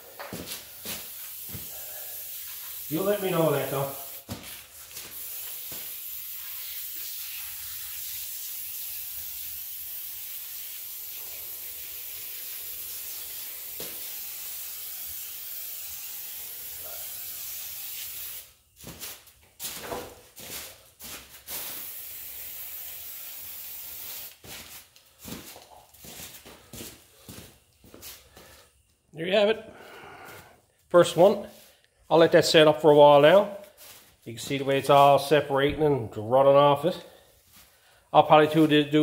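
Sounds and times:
aerosol can spraying: 0:00.3 - 0:18.6, 0:21.4 - 0:24.9.

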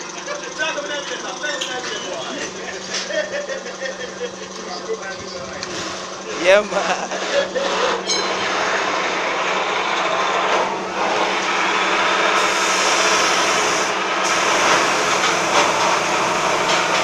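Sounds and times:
machine running with low hum: 0:00.0 - 0:17.0
harsh high hiss: 0:12.2 - 0:17.0.

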